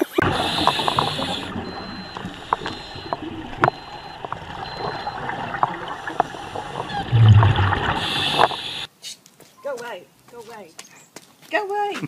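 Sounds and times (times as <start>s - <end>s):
regulator bubbles hissing: 0.0s - 8.9s
faint high beep: 0.9s - 6.2s.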